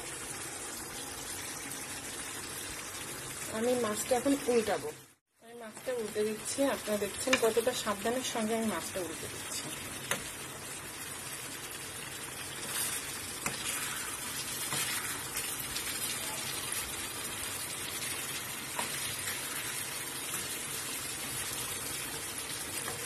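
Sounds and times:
curry simmering with sizzling hiss: 0:00.0 - 0:23.0.

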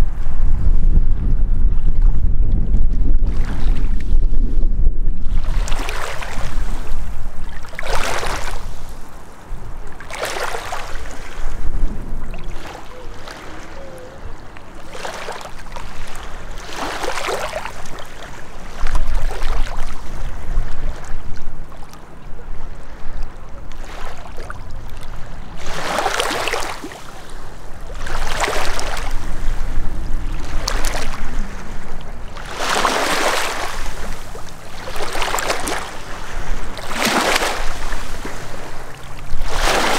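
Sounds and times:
wind buffeting microphone: 0:00.0 - 0:39.9
waves lapping over rocks: 0:05.4 - 0:11.6, 0:12.2 - 0:20.1, 0:22.7 - 0:39.9.

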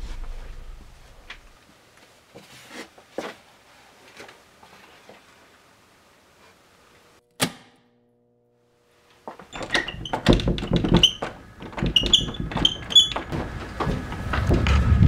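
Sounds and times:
door rattling with latch jangling: 0:09.5 - 0:14.7.

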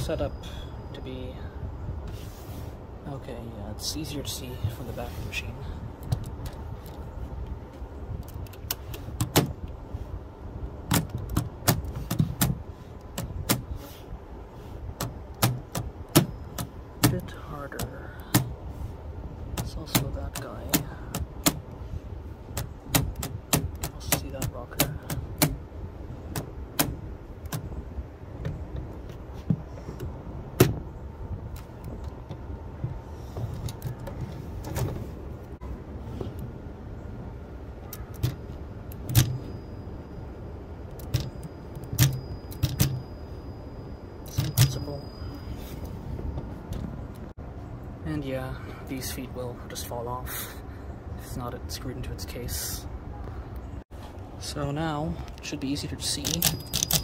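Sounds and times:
low handling rumble: 0:00.8 - 0:50.2
typewriter mechanism clicking: 0:41.0 - 0:43.0, 0:56.2 - 0:57.0.

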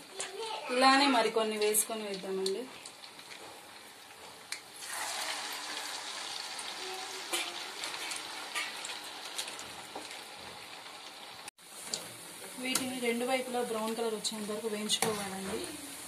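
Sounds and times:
fritters sizzling in hot oil: 0:00.1 - 0:16.0.

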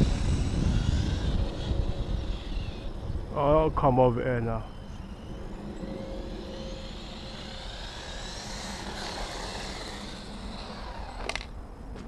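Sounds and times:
rc truck motor whining: 0:00.0 - 0:03.6, 0:04.5 - 0:11.6.

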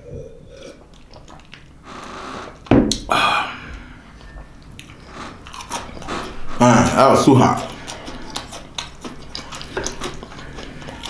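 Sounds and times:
person gulping and swallowing: 0:00.0 - 0:01.8
loud knock: 0:02.7 - 0:03.1.

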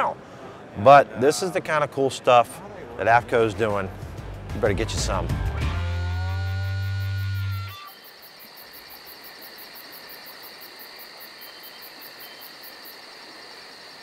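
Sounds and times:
sustained music chord: 0:04.8 - 0:07.7
crickets chirping: 0:06.2 - 0:14.0.

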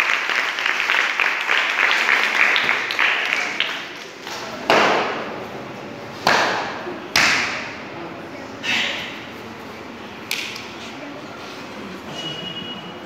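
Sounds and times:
applause: 0:00.0 - 0:03.9
sharp impacts ringing in a room: 0:04.6 - 0:05.3, 0:06.2 - 0:07.8.

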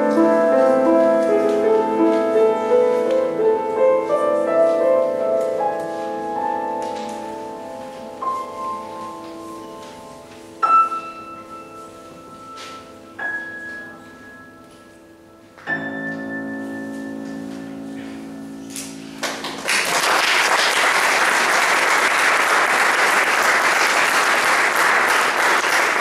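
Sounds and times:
grand piano chords: 0:00.0 - 0:26.0
audience applause: 0:19.2 - 0:26.0.

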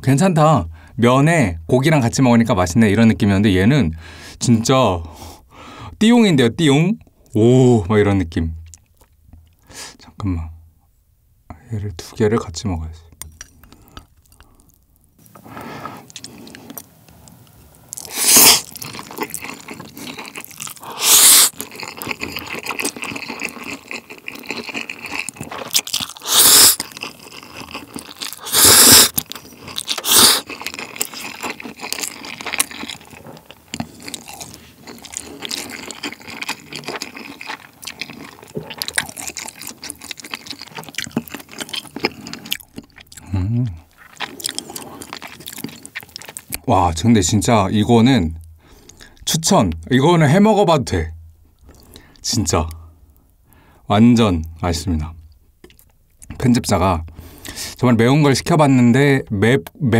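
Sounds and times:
chewing: 0:13.1 - 0:46.7, 0:51.5 - 0:53.4, 0:55.2 - 0:56.5
noodle slurps: 0:18.0 - 0:25.2, 0:26.1 - 0:32.4.

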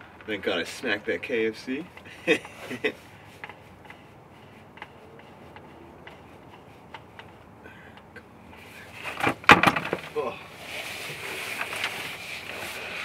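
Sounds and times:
small clicks of hands working: 0:03.4 - 0:04.0
loud knocks and clatter: 0:09.2 - 0:10.1.

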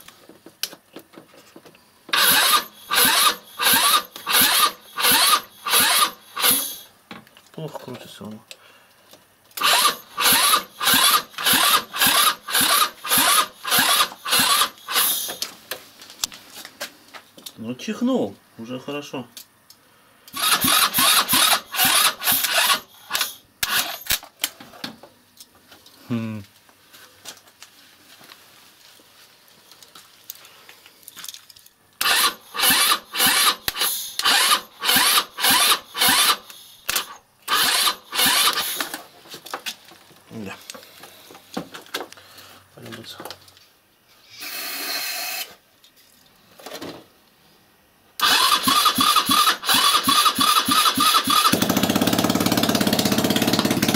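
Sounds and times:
scooter engine cranking: 0:02.1 - 0:06.8, 0:09.6 - 0:15.4, 0:20.3 - 0:24.2, 0:32.0 - 0:39.0, 0:48.2 - 0:53.9.

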